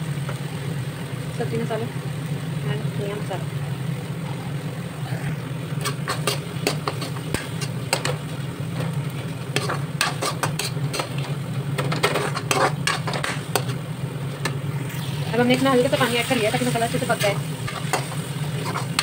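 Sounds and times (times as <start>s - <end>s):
steady low hum: 0.0s - 19.0s
spoon scraping a frying pan: 5.7s - 8.2s, 9.5s - 13.8s, 17.2s - 19.0s.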